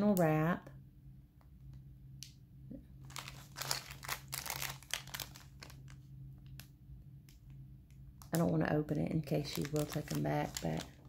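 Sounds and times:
plastic bag crinkling: 3.0s - 6.6s, 9.2s - 11.0s.

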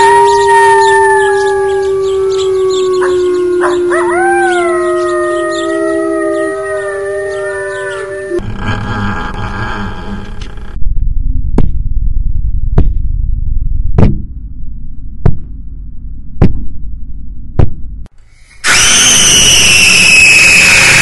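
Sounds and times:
animals howling: 0.0s - 8.7s
rough noisy rumble: 8.4s - 11.4s.

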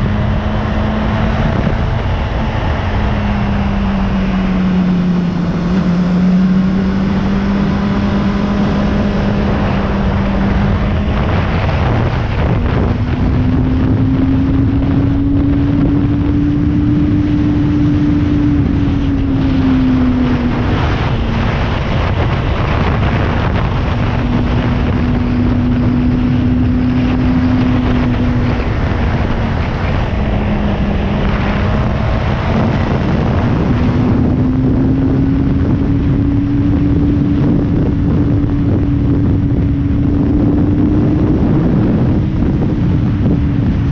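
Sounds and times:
motorcycle engine cruising: 0.0s - 43.9s
wind noise on microphone: 0.0s - 43.9s.

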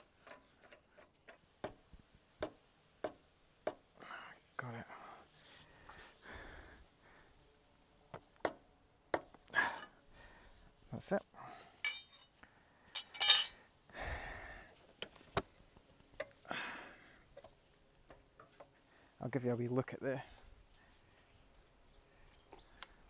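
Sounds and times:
spanner tapping on metal: 11.8s - 12.2s, 13.0s - 13.6s
bright ringing metal clinks: 11.8s - 12.3s, 13.0s - 13.7s.

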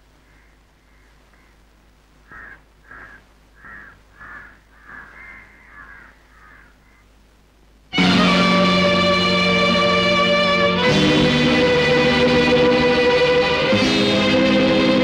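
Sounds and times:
crow cawing: 0.2s - 7.2s.

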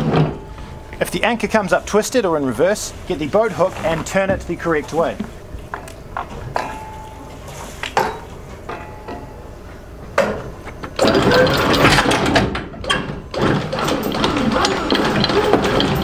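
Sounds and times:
anchor knocking on bow roller: 3.8s - 5.4s
anchor chain clattering: 11.0s - 16.0s.

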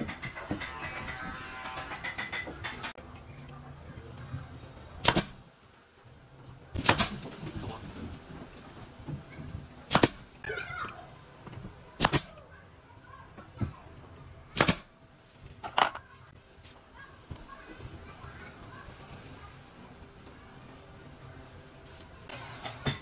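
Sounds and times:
nail gun firing: 5.0s - 5.4s, 6.8s - 7.3s, 9.9s - 10.2s, 12.0s - 12.3s, 14.6s - 14.9s.

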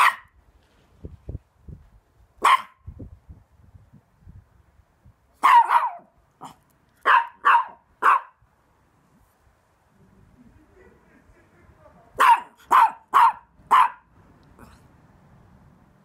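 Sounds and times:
small dog barking: 0.0s - 0.4s, 2.4s - 2.8s, 5.4s - 8.4s, 12.2s - 14.8s.

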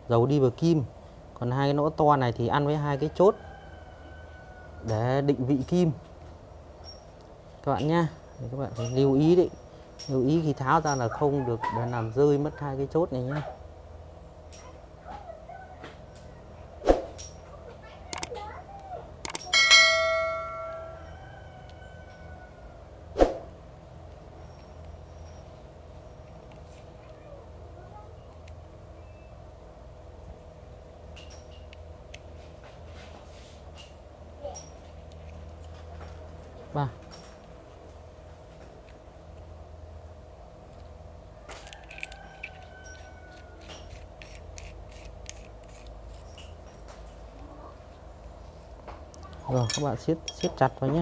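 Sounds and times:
struck metal ringing: 19.5s - 21.2s
metal parts clinking: 41.5s - 47.2s, 49.4s - 51.0s.

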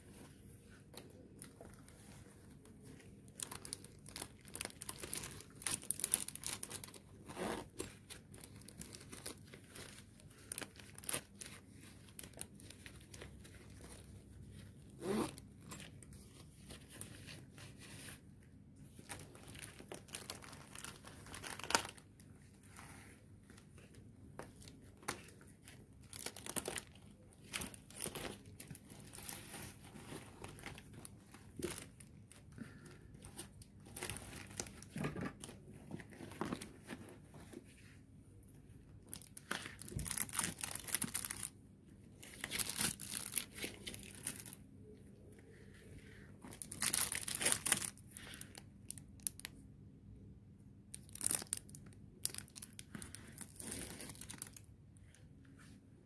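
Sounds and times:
plastic packaging crinkling: 3.0s - 14.3s, 19.0s - 22.2s, 24.5s - 32.4s, 39.0s - 41.5s, 42.2s - 44.6s, 46.5s - 49.5s, 50.9s - 54.7s.

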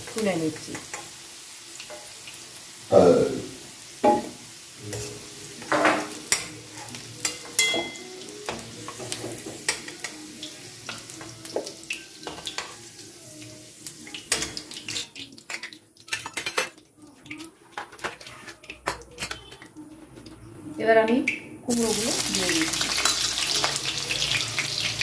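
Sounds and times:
oil sizzling: 0.0s - 19.5s, 21.7s - 25.0s
metal spoon clinking and scraping: 5.8s - 8.1s, 14.3s - 19.7s, 22.7s - 23.8s.

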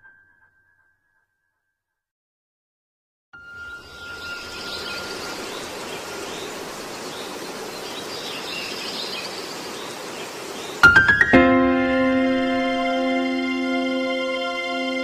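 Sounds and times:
small birds chirping: 3.6s - 11.1s
steady background hiss: 3.8s - 11.1s.

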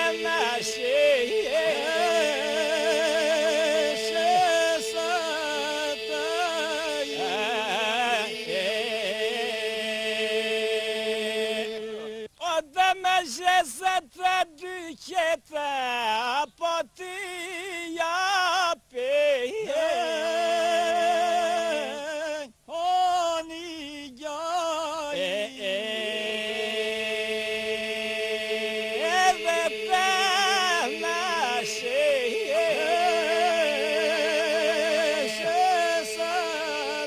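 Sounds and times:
men singing held drone: 0.0s - 12.3s, 19.1s - 23.6s, 24.4s - 37.0s
man singing ornamented line: 0.0s - 37.0s.

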